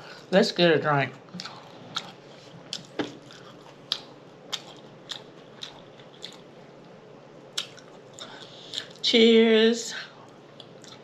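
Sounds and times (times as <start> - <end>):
chewing and lip smacking: 1.4 - 6.5, 7.5 - 9.0, 10.2 - 11.0.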